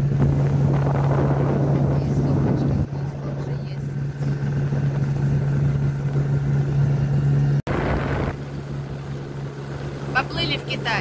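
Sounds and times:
wind noise: 0:00.0 - 0:07.1, 0:07.7 - 0:09.2
motorboat engine droning: 0:00.0 - 0:11.0
water noise: 0:00.0 - 0:11.0.

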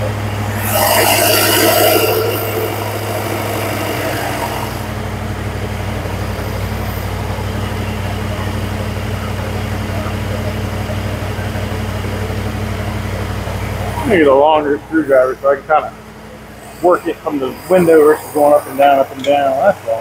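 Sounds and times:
truck engine idling: 0:00.0 - 0:20.0
hissing rushing sound: 0:00.3 - 0:05.1.

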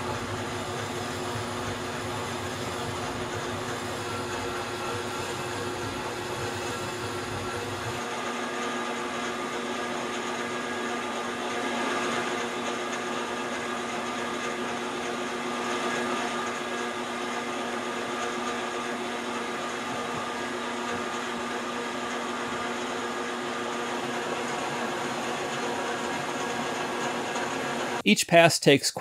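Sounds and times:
metal lathe cutting: 0:00.0 - 0:28.0.

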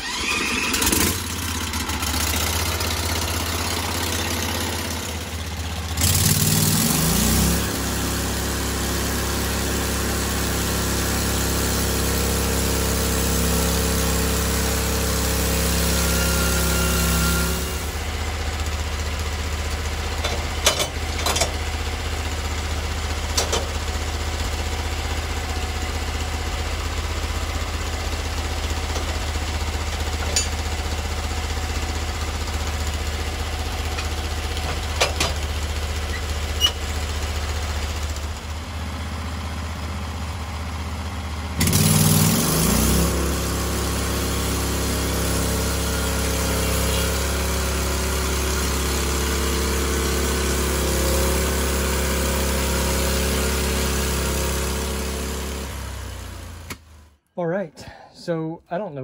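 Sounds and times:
gas engine running: 0:00.0 - 0:57.1
bandsaw cutting log: 0:06.0 - 0:18.0, 0:41.6 - 0:56.4.

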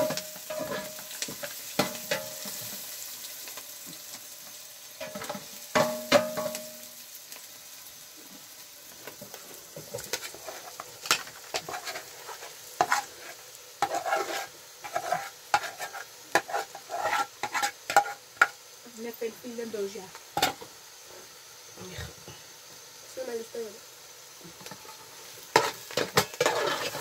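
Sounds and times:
utensil scraping a pot: 0:09.8 - 0:18.5, 0:24.8 - 0:27.0.

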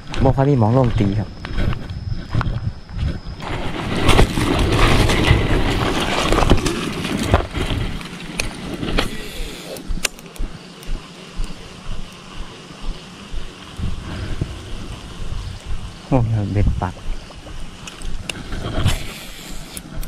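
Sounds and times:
wind noise: 0:00.0 - 0:20.0
motorcycle engine rumble: 0:07.1 - 0:20.0.

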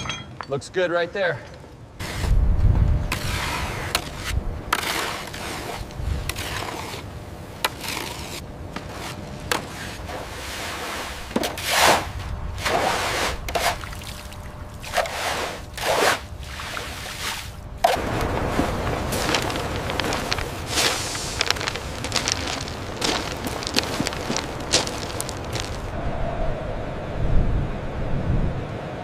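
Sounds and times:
brooms scraping: 0:17.1 - 0:25.9.

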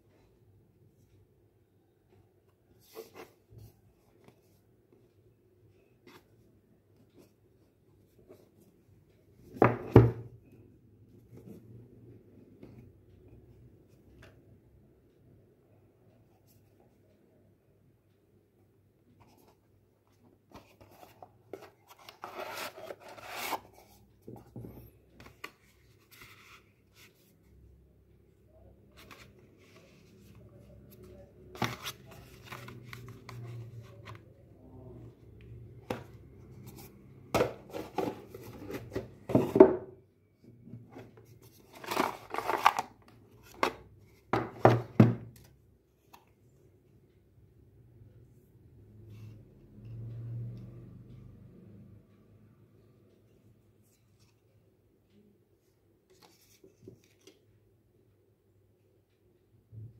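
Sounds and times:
cardboard and plastic scraping: 0:20.5 - 0:25.4, 0:30.9 - 0:34.2, 0:35.9 - 0:39.8, 0:41.0 - 0:43.8
box parts knocking on wooden table: 0:44.4 - 0:45.3.

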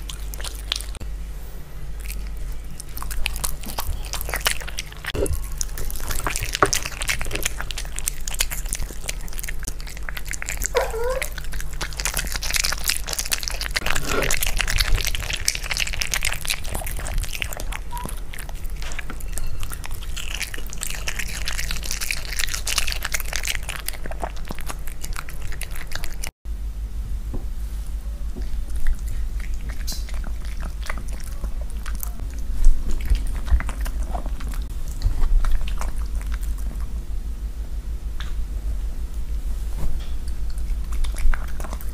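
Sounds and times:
dog lapping and chewing: 0:00.0 - 0:01.0, 0:01.9 - 0:26.3, 0:28.4 - 0:37.0, 0:40.3 - 0:41.9
teeth scraping a plate: 0:02.0 - 0:26.3.

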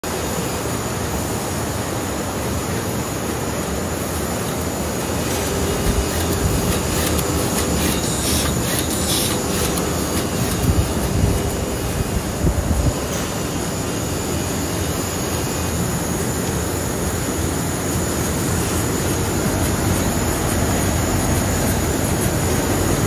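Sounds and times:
laminating machine hum and rattle: 0:00.0 - 0:23.0
machine clicking and clatter: 0:04.4 - 0:12.0.

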